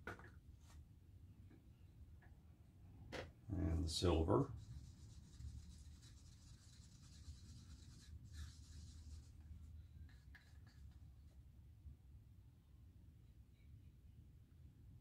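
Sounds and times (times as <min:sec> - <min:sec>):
stick scraping paint cup: 0:04.4 - 0:11.4.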